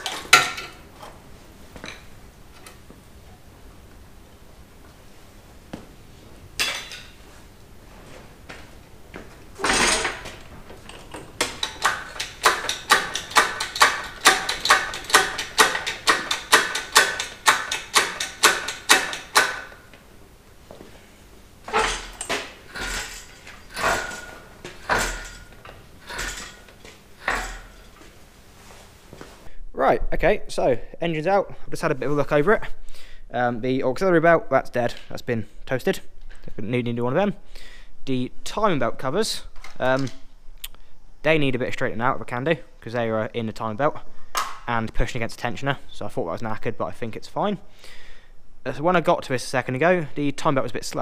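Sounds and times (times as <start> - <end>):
metal knocking and clanking: 0.0 - 1.2, 6.6 - 7.2, 9.6 - 20.0, 21.6 - 28.4.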